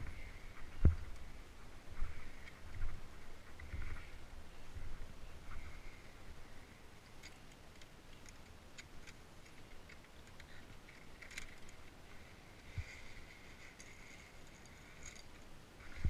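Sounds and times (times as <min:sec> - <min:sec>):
climbing gear clicks: 0:07.0 - 0:16.0.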